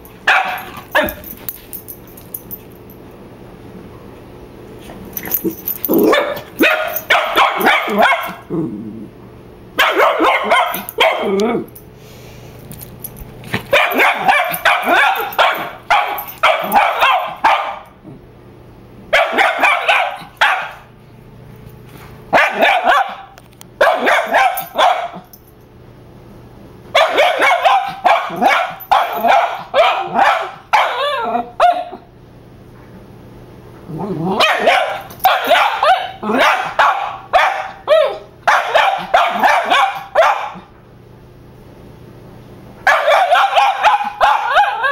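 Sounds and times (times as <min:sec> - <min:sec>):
dog barking sharp high barks: 0:00.3 - 0:01.2, 0:06.0 - 0:08.4, 0:09.8 - 0:11.3, 0:13.7 - 0:17.8, 0:19.2 - 0:20.9, 0:22.3 - 0:25.2, 0:27.0 - 0:32.0, 0:34.4 - 0:40.7, 0:42.9 - 0:44.9.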